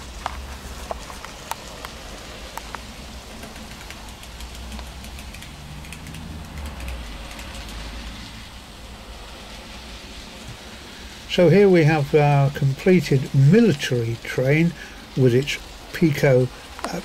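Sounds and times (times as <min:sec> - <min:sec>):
model train wheels clicking: 0:00.0 - 0:08.2.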